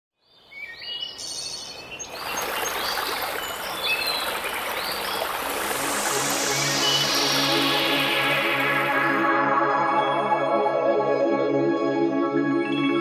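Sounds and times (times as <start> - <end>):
small birds singing: 0.2 - 8.4
stream running over stones: 2.0 - 9.2.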